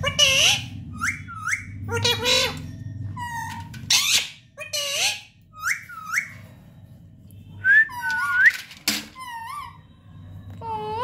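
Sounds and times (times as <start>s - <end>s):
parakeet squawks: 0.0s - 6.5s
parakeet rising whistles: 7.6s - 8.6s.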